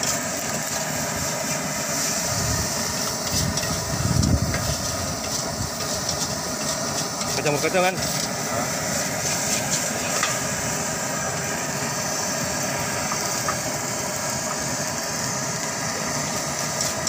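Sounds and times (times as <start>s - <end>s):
gas burner rushing: 0.0s - 17.0s.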